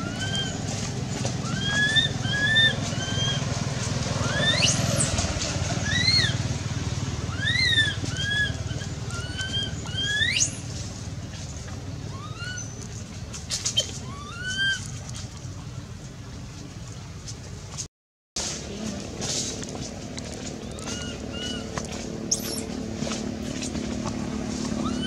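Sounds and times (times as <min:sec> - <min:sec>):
macaque coo calls: 0:00.0 - 0:00.6, 0:01.4 - 0:03.4, 0:07.3 - 0:10.5, 0:13.8 - 0:14.9, 0:20.7 - 0:21.7
macaque squeals: 0:00.0 - 0:00.6, 0:01.4 - 0:03.4, 0:04.2 - 0:04.8, 0:05.8 - 0:06.4, 0:07.3 - 0:10.6, 0:12.1 - 0:12.8, 0:13.8 - 0:14.9, 0:20.7 - 0:21.7, 0:22.3 - 0:22.7.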